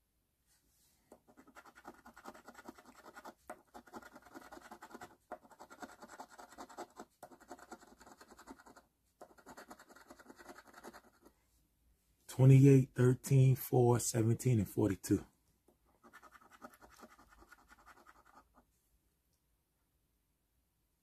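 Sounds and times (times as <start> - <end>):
coin scratching lottery ticket: 1.3 - 11.3, 16.0 - 18.6.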